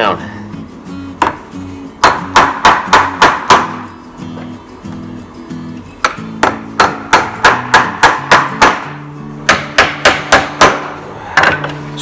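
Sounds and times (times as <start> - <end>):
soft background music: 0.0 - 12.0
hammer driving nails into wood: 2.0 - 3.8, 6.0 - 11.7.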